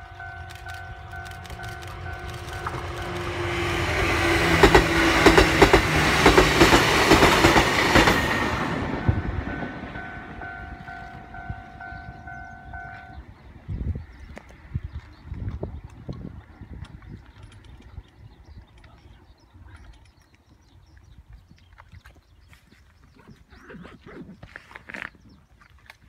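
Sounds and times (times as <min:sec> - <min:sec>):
pulsing ringing tone: 0:00.0 - 0:03.6, 0:09.0 - 0:13.3
train wheels clacking: 0:00.1 - 0:13.2.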